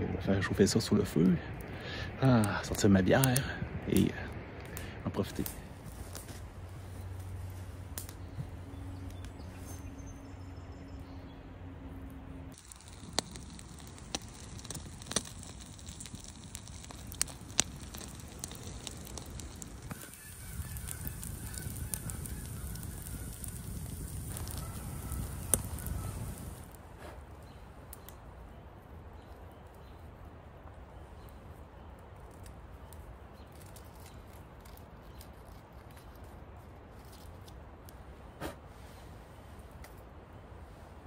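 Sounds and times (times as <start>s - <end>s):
campfire crackling: 0.0s - 41.0s
burning logs popping: 0.7s - 10.0s, 12.5s - 28.6s, 29.2s - 38.6s
faint bird calls: 17.9s - 26.6s.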